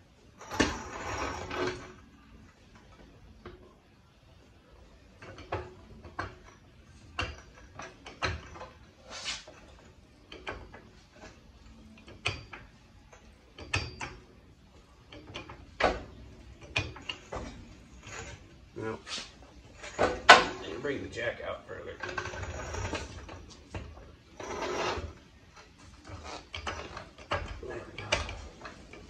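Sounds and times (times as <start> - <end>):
metal parts clinking and knocking: 5.0 - 9.0, 9.6 - 18.6, 19.7 - 20.6, 22.0 - 29.0.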